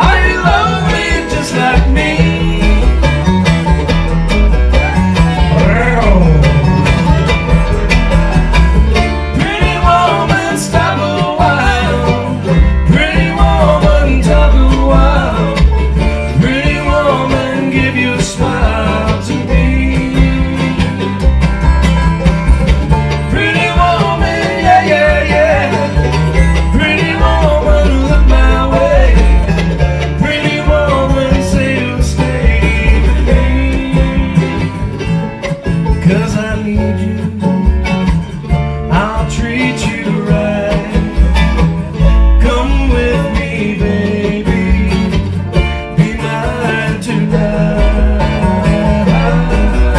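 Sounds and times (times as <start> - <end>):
person singing: 0.0 - 3.0, 4.8 - 8.1, 9.3 - 21.1, 23.3 - 34.8, 45.9 - 49.9
acoustic guitar: 0.0 - 49.9
banjo: 0.0 - 49.9
mandolin: 0.0 - 49.9
upright bass: 0.0 - 49.9.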